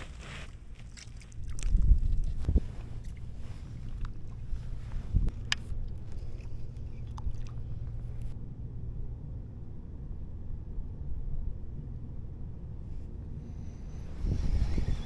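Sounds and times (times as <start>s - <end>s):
wind buffeting microphone: 1.5s - 5.6s, 13.8s - 15.0s.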